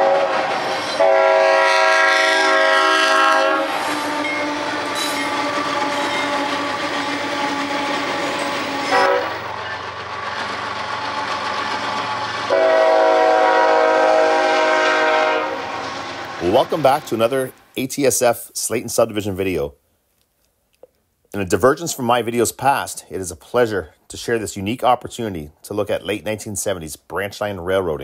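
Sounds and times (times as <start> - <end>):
diesel locomotive horn: 0.0 - 8.1, 8.8 - 9.6, 12.4 - 16.2
freight train rumbling past: 0.0 - 18.3.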